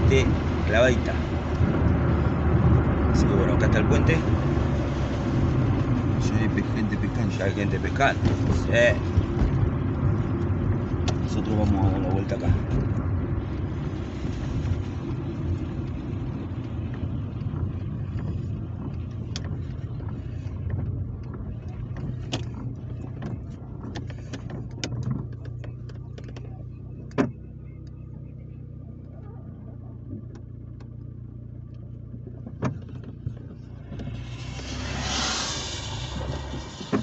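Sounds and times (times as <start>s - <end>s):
car engine and tyre rumble: 0.0s - 37.0s
sharp clicks and knocks: 15.4s - 28.0s, 30.1s - 35.5s.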